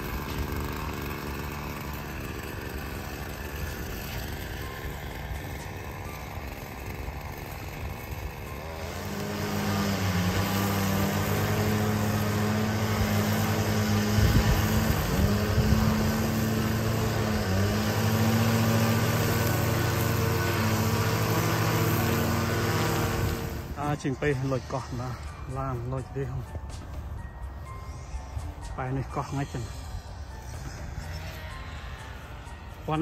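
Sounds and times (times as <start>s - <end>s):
string trimmer running: 0.0s - 33.0s.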